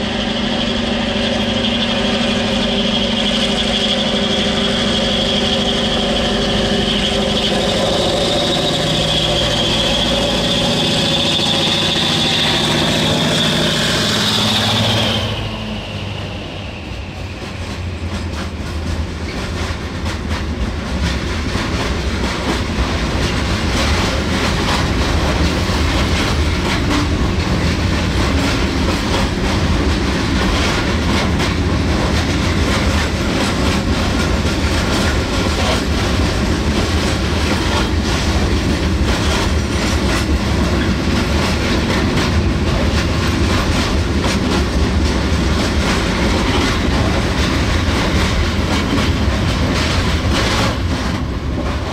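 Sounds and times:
diesel locomotive engine: 0:00.0 - 0:51.9
train wagons rumbling: 0:00.0 - 0:51.9
wheel clatter over rail joints: 0:17.3 - 0:51.9.

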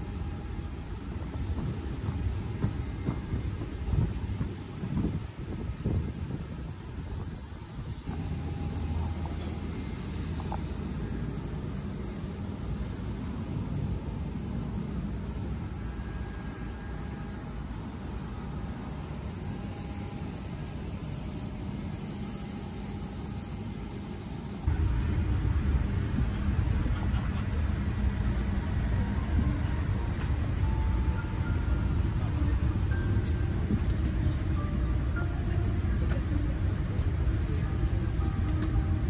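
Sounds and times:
airliner cabin air system rumble: 0:00.0 - 0:39.0
airport ambience rumble: 0:00.0 - 0:39.0.

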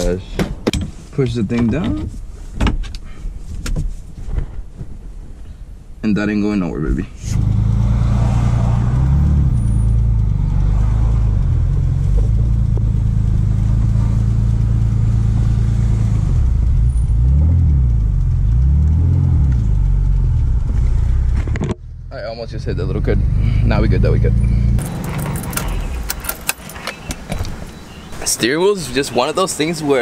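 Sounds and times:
car engine revving: 0:07.2 - 0:28.2.

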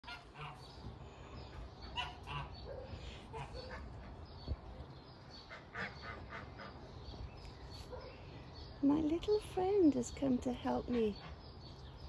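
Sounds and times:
waterfowl honking: 0:00.1 - 0:00.7, 0:01.9 - 0:02.6.

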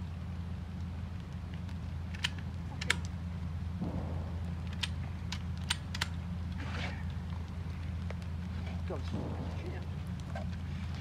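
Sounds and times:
steady low hum: 0:00.0 - 0:11.0
shotgun action clicking: 0:02.1 - 0:03.1, 0:03.8 - 0:06.2.

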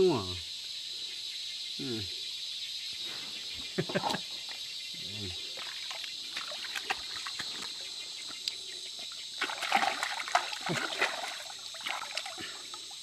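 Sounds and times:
water splashing in river: 0:05.6 - 0:07.5, 0:09.3 - 0:13.0.

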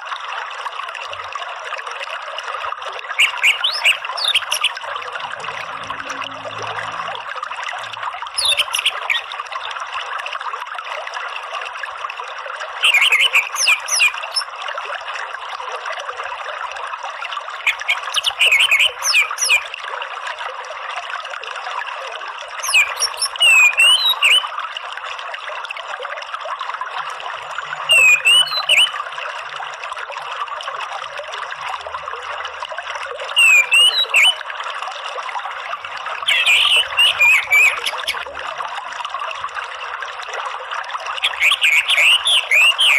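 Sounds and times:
thrush twittering calls: 0:03.2 - 0:04.8, 0:08.4 - 0:09.4, 0:12.8 - 0:14.5, 0:17.7 - 0:19.7, 0:22.6 - 0:24.4, 0:27.8 - 0:29.0, 0:33.4 - 0:34.4, 0:36.2 - 0:38.2, 0:41.2 - 0:42.9
stream rushing: 0:03.5 - 0:09.2.

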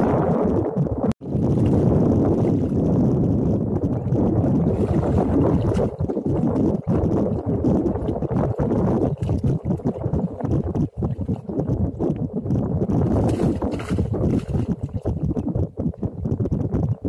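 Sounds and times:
wind buffeting microphone: 0:00.0 - 0:17.0
shallow water sloshing: 0:04.4 - 0:11.8, 0:12.9 - 0:15.2.

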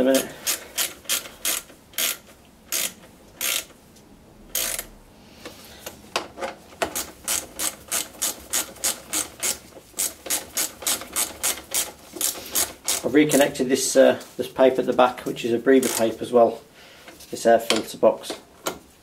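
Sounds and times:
socket ratchet clicking: 0:00.4 - 0:03.8, 0:04.5 - 0:04.9, 0:06.8 - 0:13.1, 0:15.8 - 0:16.1.

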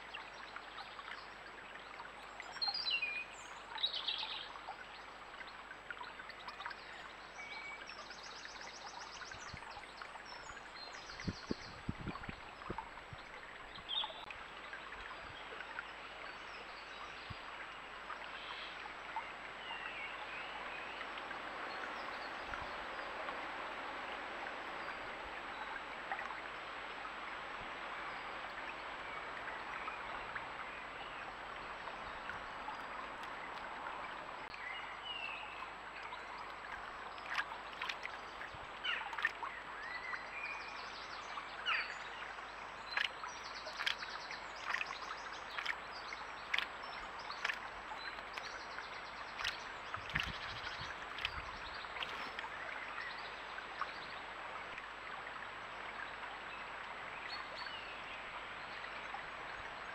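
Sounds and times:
stream flowing over stones: 0:00.0 - 0:59.9
small splashes: 0:31.2 - 0:34.6, 0:35.9 - 0:40.2, 0:41.6 - 0:54.0.

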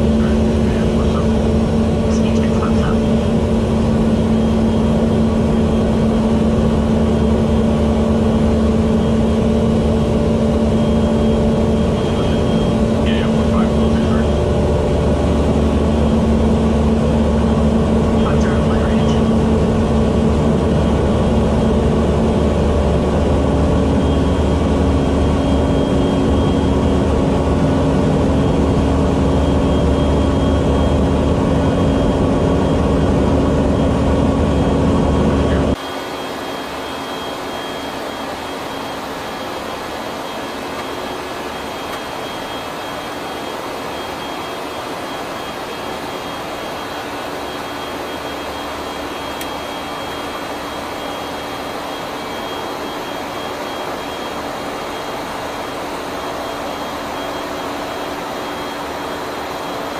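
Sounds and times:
aircraft engine drone: 0:00.0 - 0:59.9
thin high whine: 0:35.4 - 0:59.9.

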